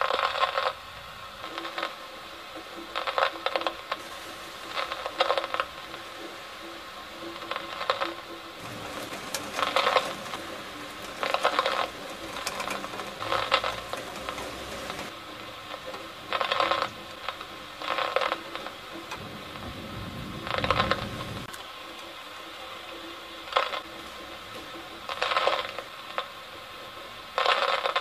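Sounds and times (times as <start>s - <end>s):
rain striking window glass: 0.0s - 28.0s
thunder rumbling: 3.9s - 21.5s.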